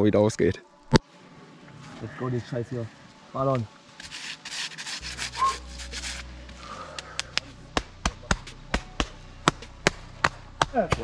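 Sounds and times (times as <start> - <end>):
scuffing and rubbing: 4.0 - 6.6
sharp hand slaps: 6.9 - 11.0.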